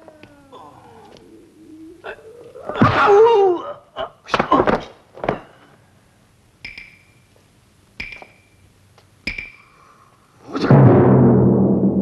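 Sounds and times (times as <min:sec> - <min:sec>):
short metallic pings: 0:06.6 - 0:07.3, 0:08.0 - 0:08.6, 0:09.2 - 0:09.8.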